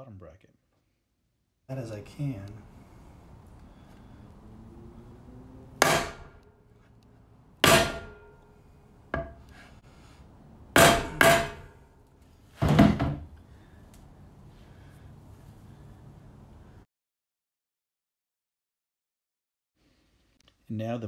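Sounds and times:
hammer striking wooden board: 5.8 - 6.3, 7.6 - 8.3, 9.1 - 9.4, 10.8 - 11.7.

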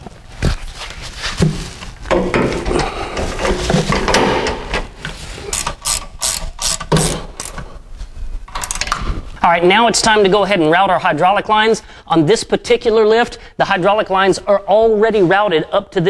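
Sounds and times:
knocks and rattles against steel: 1.4 - 5.0
ratchet wrench clicks: 5.5 - 7.6.

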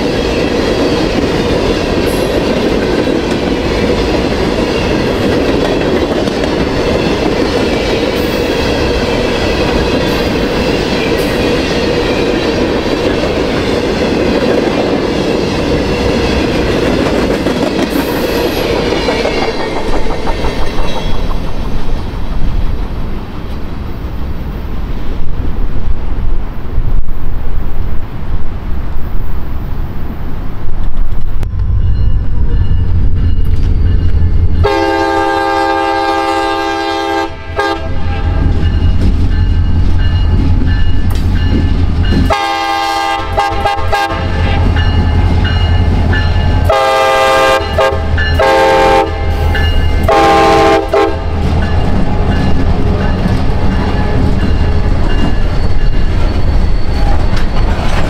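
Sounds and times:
passing train rumble: 0.0 - 58.0
locomotive air horn blasts: 34.6 - 38.5, 42.3 - 44.8, 46.6 - 51.4.

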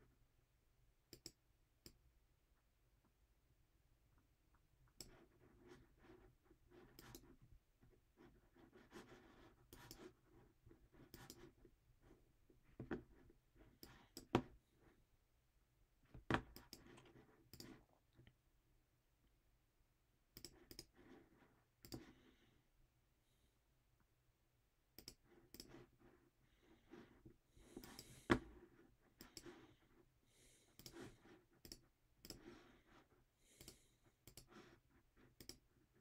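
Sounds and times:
mouse and keyboard clicks: 16.3 - 17.8.

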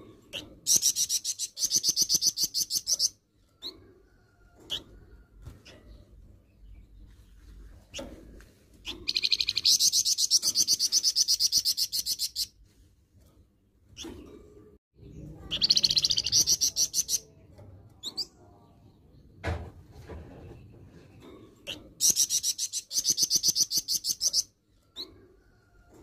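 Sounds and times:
songbird rattling trill: 8.8 - 12.5.

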